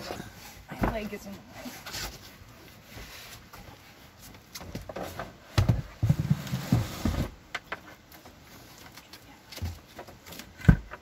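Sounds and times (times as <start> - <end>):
plastic cooler knocking and thumping: 4.8 - 7.4.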